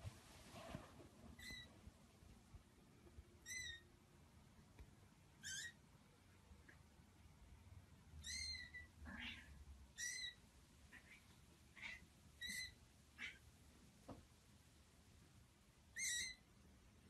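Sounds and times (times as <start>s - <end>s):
kitten mewing: 8.2s - 13.4s.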